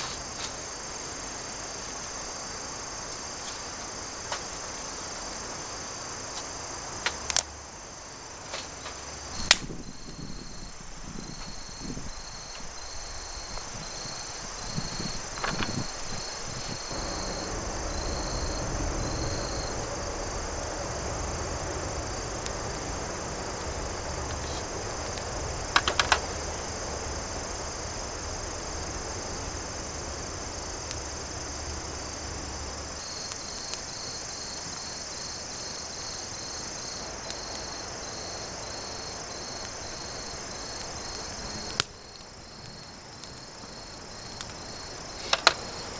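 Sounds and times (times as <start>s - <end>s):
crickets chirping: 0.0s - 45.9s
low steady rush: 0.2s - 33.0s
sharp snaps of twigs: 6.3s - 7.6s, 8.4s - 10.2s, 44.2s - 45.9s.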